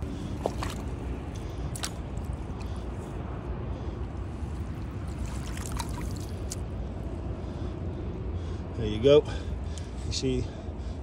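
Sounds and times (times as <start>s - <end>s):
small water splashes: 0.0s - 3.1s, 4.4s - 6.7s
water sloshing and trickling: 0.0s - 7.0s
steady low rumble: 0.0s - 11.0s.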